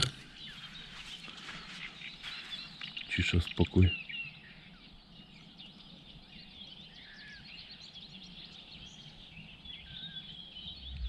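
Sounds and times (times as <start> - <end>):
birds chirping and singing: 0.0 - 11.0
faint low hum: 8.2 - 11.0.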